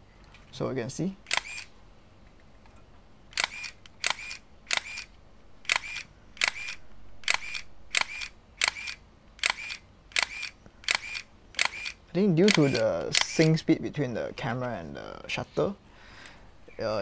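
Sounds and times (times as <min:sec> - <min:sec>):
camera shutter clicking and whirring: 0:01.2 - 0:01.8, 0:03.3 - 0:13.7.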